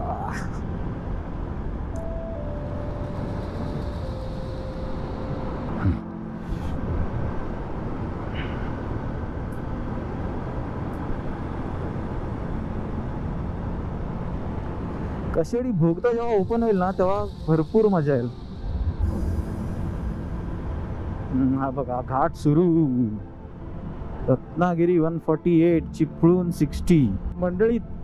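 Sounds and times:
motorcycle engine and road noise: 0.0 - 15.7.

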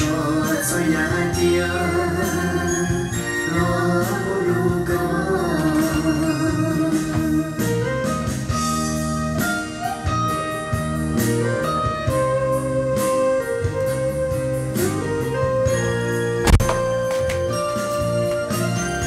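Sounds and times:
music with guitar and beat: 0.0 - 19.0.

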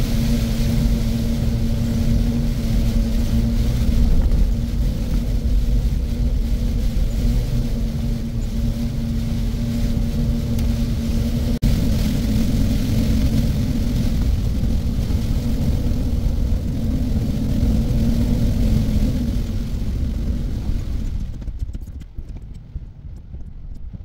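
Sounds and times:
car road and tyre noise: 0.0 - 24.0.

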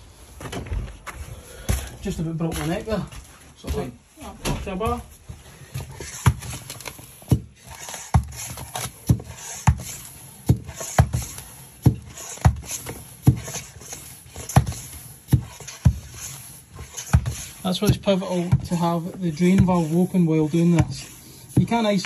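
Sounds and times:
hand floor pump strokes: 5.4 - 22.0.

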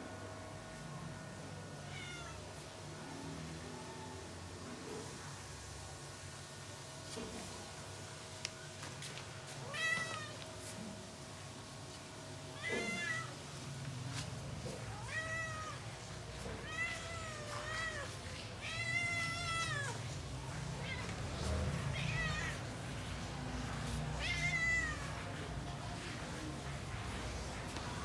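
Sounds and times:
cat meowing: 1.8 - 2.6, 9.6 - 10.4, 12.5 - 13.4, 14.7 - 22.9, 24.2 - 25.2.

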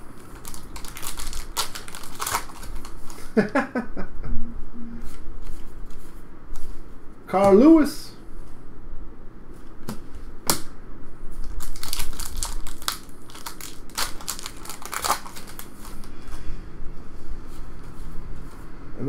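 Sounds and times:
plastic wrapper crinkling: 0.2 - 3.4, 11.4 - 16.1.

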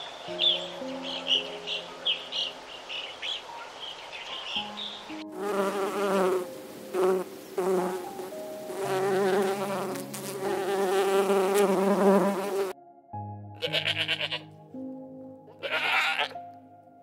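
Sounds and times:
honeybee buzzing in flight: 5.3 - 12.8.

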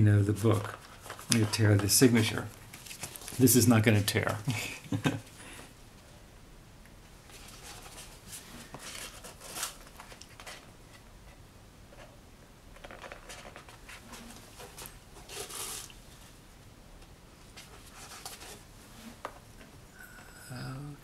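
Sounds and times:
heavy paper rustling: 0.3 - 5.1, 7.3 - 10.7, 12.8 - 16.4.

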